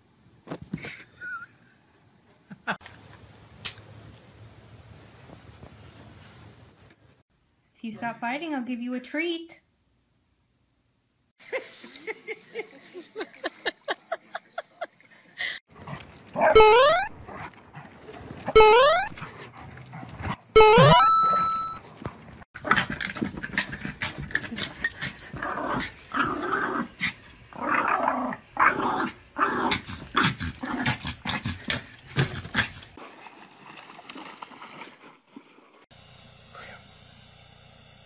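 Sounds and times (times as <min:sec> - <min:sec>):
dog growling and barking: 0:22.6 - 0:32.9.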